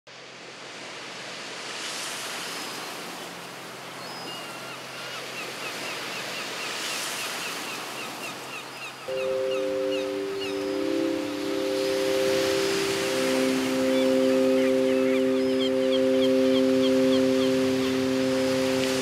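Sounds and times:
surf washing onto shore: 9.1s - 19.0s.

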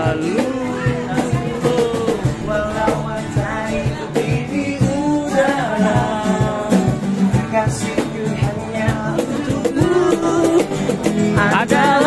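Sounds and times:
person singing: 0.0s - 12.0s
strummed acoustic guitar: 0.0s - 12.0s
steady low beat: 1.4s - 5.4s.

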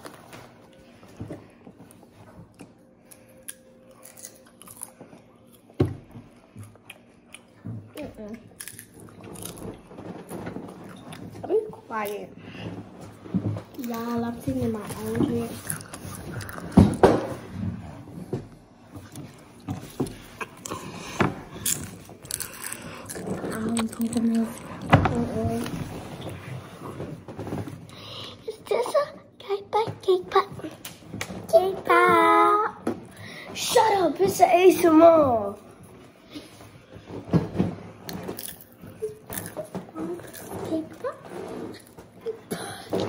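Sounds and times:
popcorn rustling and crackling: 8.1s - 18.2s, 19.0s - 28.0s, 36.0s - 43.0s.

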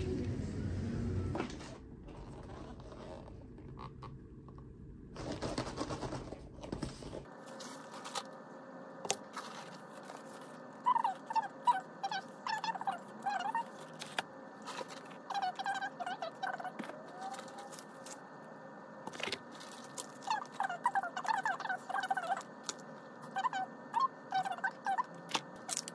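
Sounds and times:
faint steady hum: 0.0s - 25.9s
plastic packaging crinkling: 19.1s - 20.6s.

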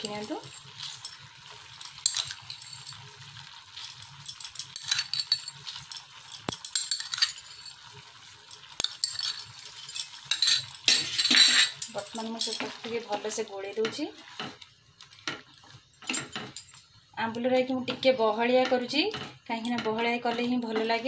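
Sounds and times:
metal spoon clinking on glass bowl: 0.0s - 3.0s, 3.8s - 7.9s, 8.5s - 12.8s
curry simmering: 0.0s - 21.0s.

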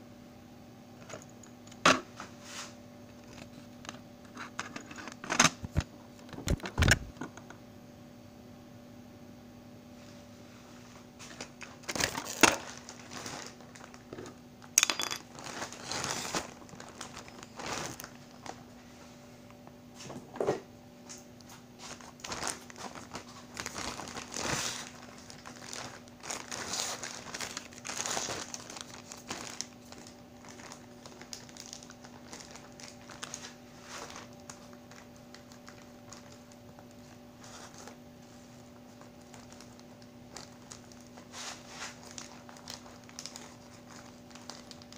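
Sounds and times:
plastic bag crinkling: 11.3s - 18.8s, 21.8s - 44.9s.

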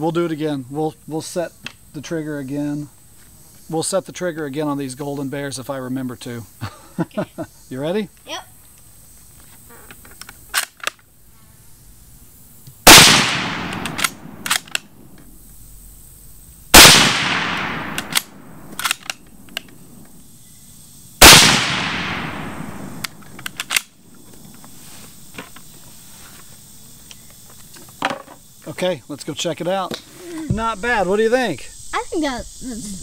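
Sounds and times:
rifle shots: 12.8s - 14.9s, 16.7s - 19.0s, 21.2s - 23.9s
rifle bolt clicks: 13.0s - 14.9s, 16.9s - 19.8s, 23.0s - 23.9s.

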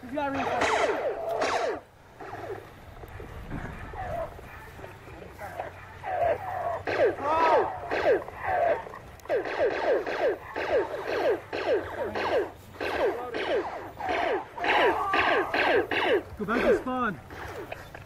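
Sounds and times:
laser tag guns firing: 0.2s - 1.9s, 6.0s - 16.9s.

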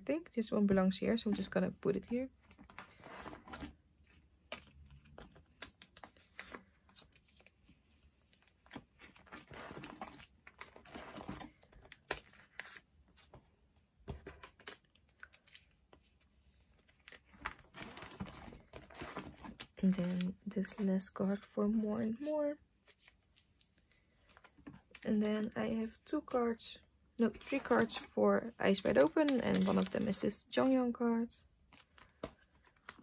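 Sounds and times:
plastic crinkling and rustling: 16.7s - 21.1s, 27.4s - 30.6s.

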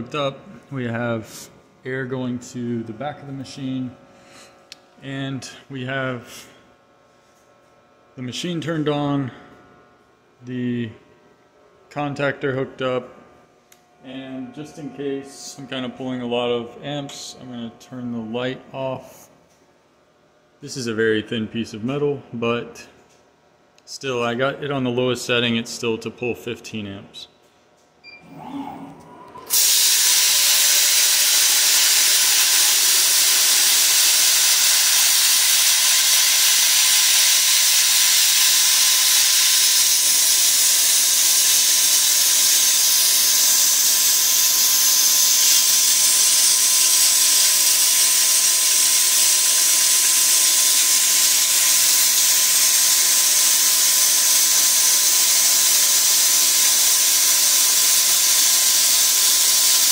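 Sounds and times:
faint steady whine: 0.0s - 29.6s
plasma cutter hissing: 29.5s - 59.9s.

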